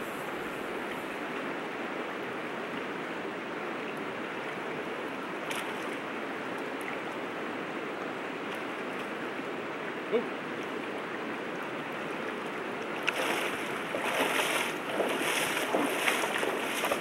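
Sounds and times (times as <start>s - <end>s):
river current rushing: 4.0s - 17.0s.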